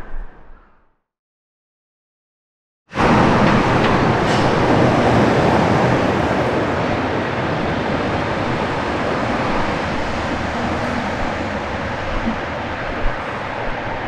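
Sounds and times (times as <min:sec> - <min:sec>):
trains passing: 0:02.9 - 0:14.0
traffic rumble: 0:03.0 - 0:14.0.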